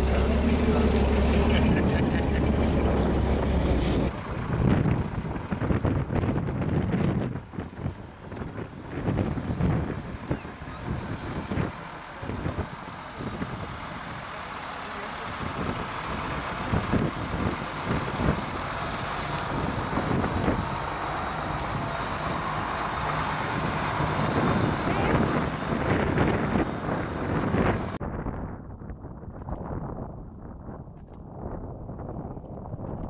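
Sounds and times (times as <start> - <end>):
truck engine running: 0.0 - 28.0
air brake hiss: 19.2 - 19.6.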